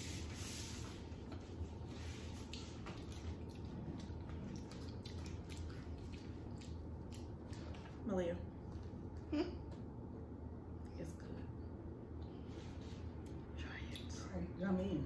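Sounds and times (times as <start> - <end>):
low hum: 0.0 - 15.0
people eating with clicks and rustles: 1.1 - 9.9.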